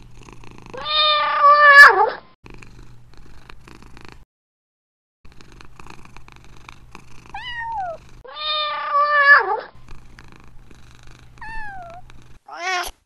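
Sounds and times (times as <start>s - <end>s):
cat purring: 0.0s - 0.9s, 2.4s - 4.2s, 5.3s - 8.3s, 9.4s - 12.5s
cat meowing: 0.8s - 2.2s, 7.4s - 9.7s, 11.4s - 13.0s.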